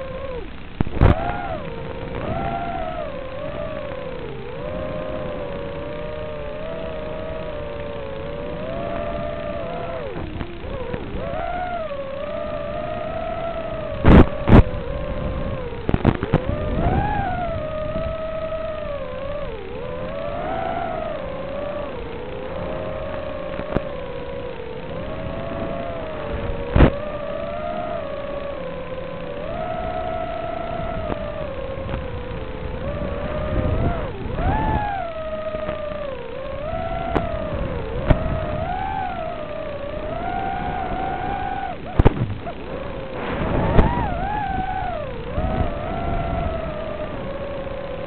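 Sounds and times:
drone motors whining: 0.0 - 48.0
crackling pop: 42.0 - 42.4.

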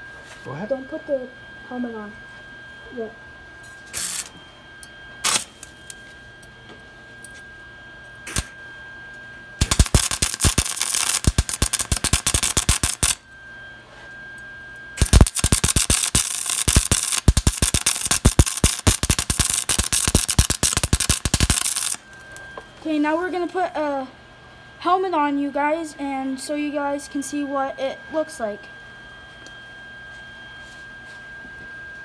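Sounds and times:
welder arc crackling: 3.9 - 4.3, 5.2 - 6.0, 8.3 - 8.5, 9.6 - 13.2, 15.0 - 23.0.

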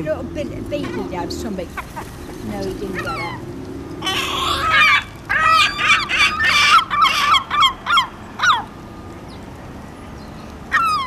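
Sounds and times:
gull long call: 4.0 - 8.7.

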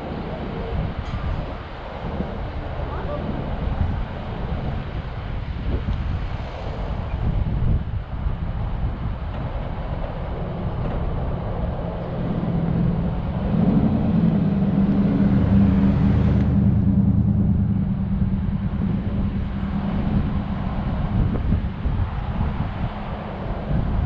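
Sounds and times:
vehicle engine hum passing: 0.0 - 24.0
wind rumbling on microphone: 0.0 - 24.0.

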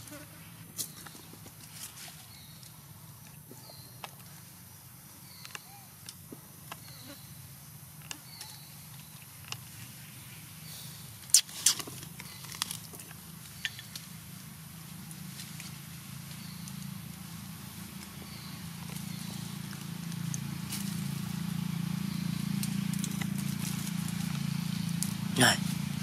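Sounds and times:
twigs and leaves rustling: 0.8 - 3.4, 11.2 - 26.0.

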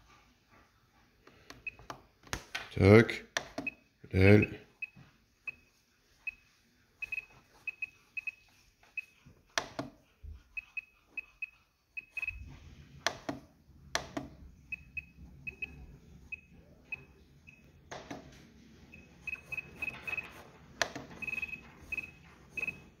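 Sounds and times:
short high beeps: 10.6 - 12.4, 21.2 - 22.9.

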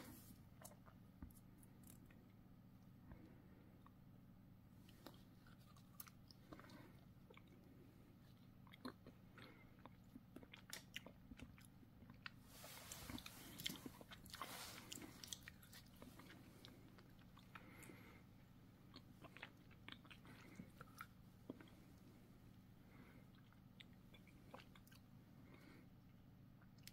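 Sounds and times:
biting and chewing ice cream bar: 4.8 - 25.8.

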